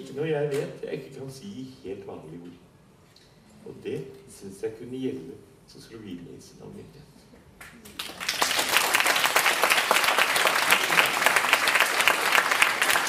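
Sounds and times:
audience applauding: 8.0s - 13.0s.

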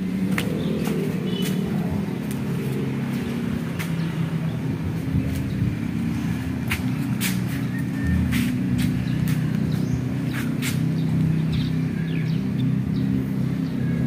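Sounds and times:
engine rumble: 0.0s - 14.0s.

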